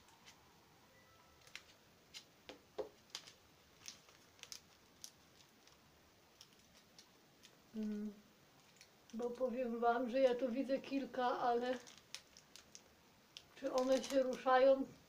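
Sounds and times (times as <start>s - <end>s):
plastic cup clicking and crinkling: 11.8s - 14.4s.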